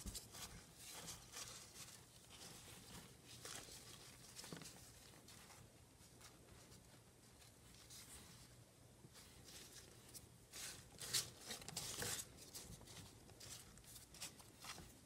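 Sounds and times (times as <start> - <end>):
dry cardboard rustling and crackling: 0.0 - 15.0.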